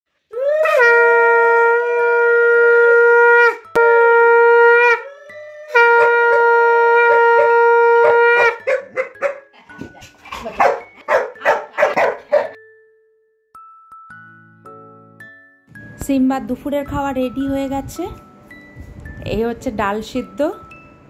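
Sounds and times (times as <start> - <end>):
toy horn notes: 3.6 - 4.8, 5.7 - 8.2
dog barking: 8.0 - 9.5, 10.6 - 12.6.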